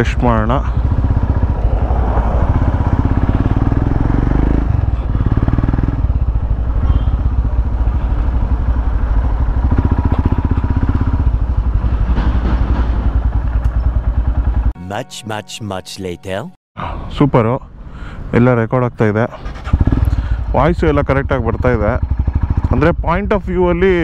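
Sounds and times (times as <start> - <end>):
motorcycle engine running: 0.0 - 14.7, 19.5 - 24.0.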